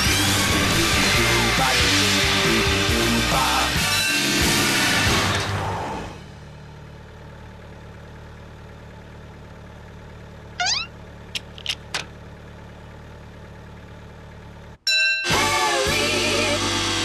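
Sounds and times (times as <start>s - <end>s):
cartoon engines idling hum: 6.2s - 14.8s
short rising squeak: 10.6s - 11.0s
sharp clicks: 10.6s - 12.1s.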